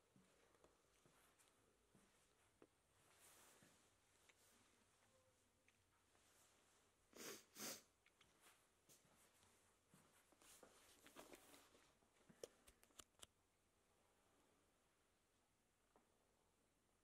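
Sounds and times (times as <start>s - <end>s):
person sniffing: 7.2s - 7.9s
faint clicks and rustles: 8.0s - 13.4s.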